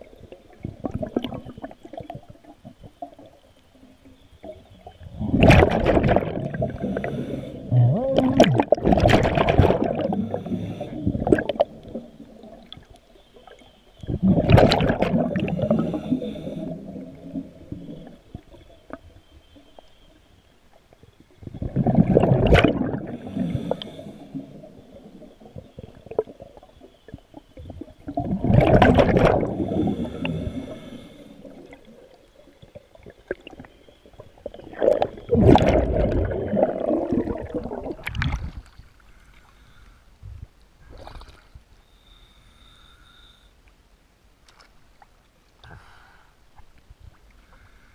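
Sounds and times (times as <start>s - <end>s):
diver exhaling bubbles underwater: 0.5s - 2.8s, 4.4s - 12.8s, 14.0s - 18.6s, 21.4s - 32.2s, 34.3s - 38.7s.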